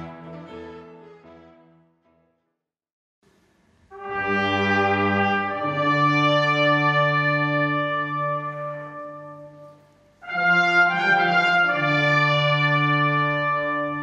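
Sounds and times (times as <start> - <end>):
trumpet and trombone held notes: 3.9 - 14.0.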